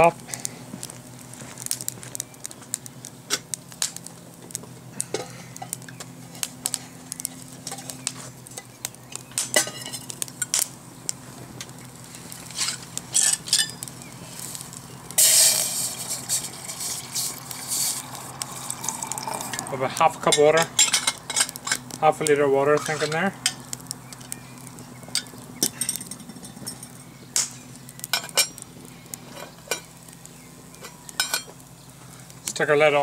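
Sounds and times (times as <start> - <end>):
wood fire crackling: 0.0 - 33.0
metal pot clinking: 9.4 - 10.6
water pouring into pot: 15.2 - 20.3.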